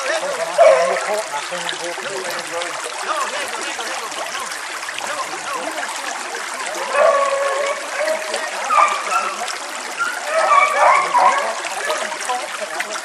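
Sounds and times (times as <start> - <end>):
creek running over rocks: 0.0 - 13.0
drawn-out calls: 6.7 - 12.3.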